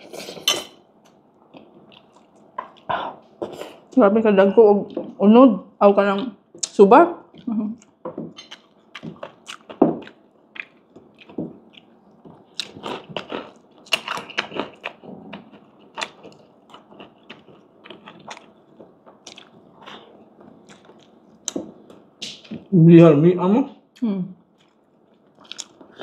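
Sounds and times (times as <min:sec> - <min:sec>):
crunchy chewing: 0:07.3 - 0:21.6, 0:24.6 - 0:26.0.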